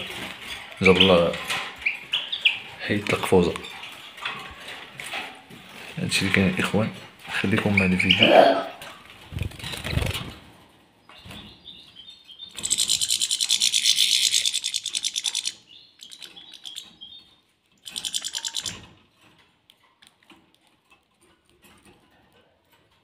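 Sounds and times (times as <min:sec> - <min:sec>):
high buzzy bird pulsing: 0:12.5 - 0:16.8, 0:17.8 - 0:18.8.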